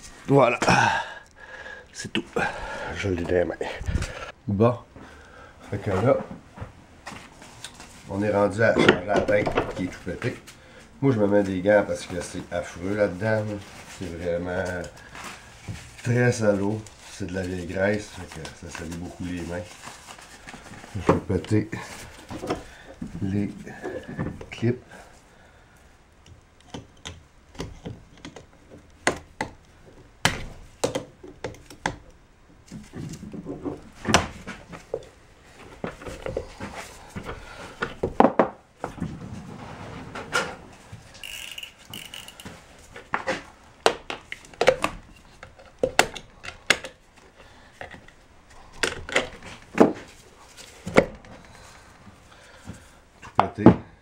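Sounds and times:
hand tools clicking and knocking: 41.1s - 47.0s.

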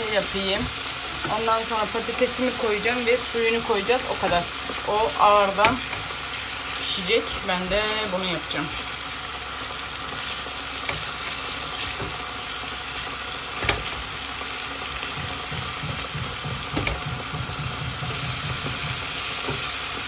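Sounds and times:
food sizzling in frying pan: 0.0s - 20.0s
knocks on pan: 15.1s - 19.6s.

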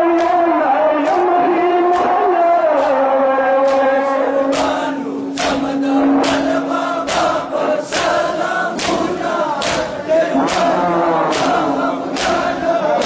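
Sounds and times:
men chanting: 0.0s - 13.0s
chest beating slaps: 2.8s - 13.0s.

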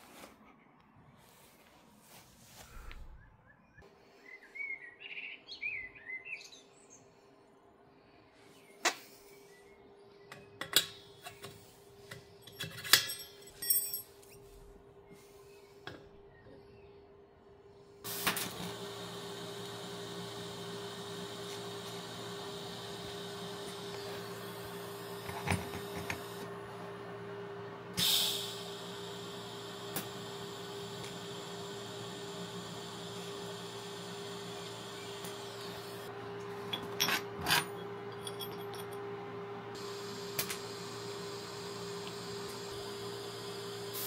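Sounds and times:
light metallic clinks: 12.4s - 14.4s
burst of hiss: 28.0s - 28.8s.

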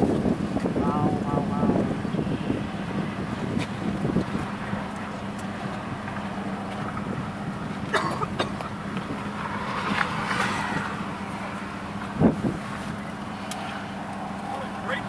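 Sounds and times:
vehicle engine low hum: 0.0s - 15.0s
even rushing noise: 8.7s - 15.0s.

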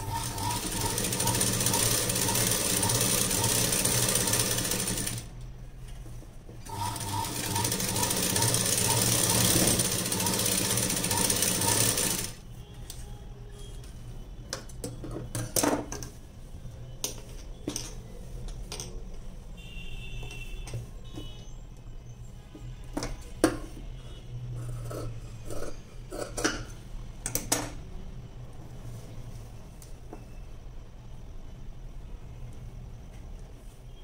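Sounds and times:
sewing machine stitching: 0.0s - 5.3s, 6.6s - 12.4s.

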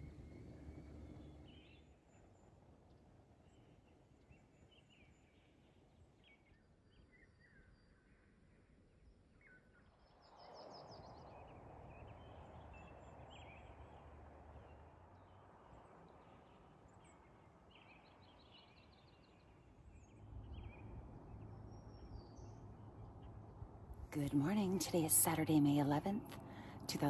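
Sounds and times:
birds chirping: 0.0s - 2.5s, 10.8s - 27.0s
soft rushing background: 0.0s - 3.9s, 10.3s - 27.0s.

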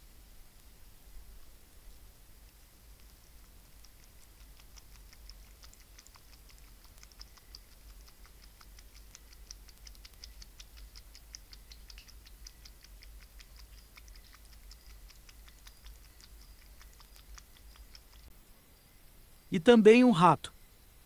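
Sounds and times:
animal lapping water: 2.8s - 18.3s.

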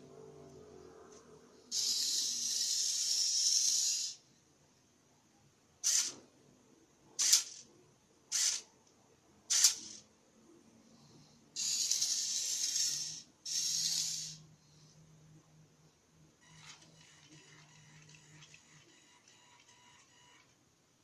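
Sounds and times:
servo motors whirring: 1.7s - 4.2s, 5.8s - 6.2s, 8.3s - 8.7s, 9.5s - 10.0s, 11.6s - 14.4s.

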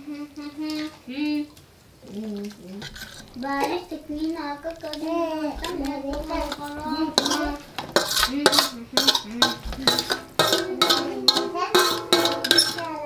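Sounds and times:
metal fork scraping a metal plate: 6.1s - 13.0s.

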